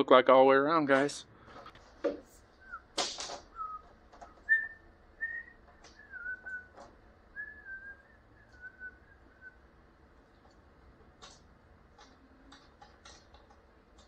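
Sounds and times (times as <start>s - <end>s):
person whistling a tune: 3.6s - 3.8s, 4.5s - 6.7s, 7.4s - 9.6s.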